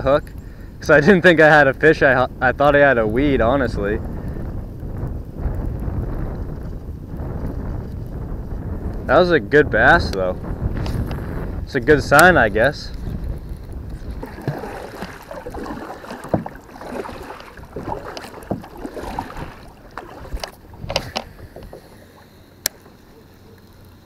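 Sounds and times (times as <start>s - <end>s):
knocks and clicks on kayak: 10.1s - 11.2s, 12.9s - 23.9s
paddle splashing in water: 13.1s - 24.0s.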